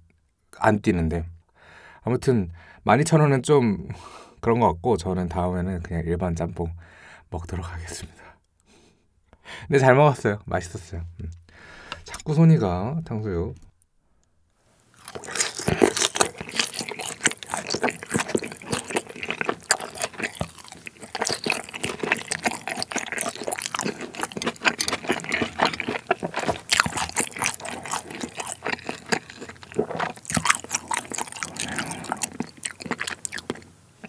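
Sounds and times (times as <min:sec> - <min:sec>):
crunchy food chewing: 0:14.9 - 0:33.7.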